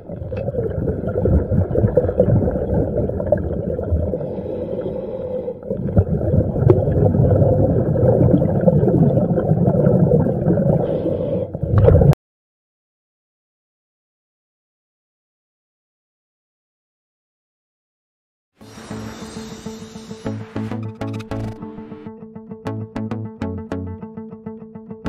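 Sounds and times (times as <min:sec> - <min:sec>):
muffled underwater rushing water: 0:00.0 - 0:12.2.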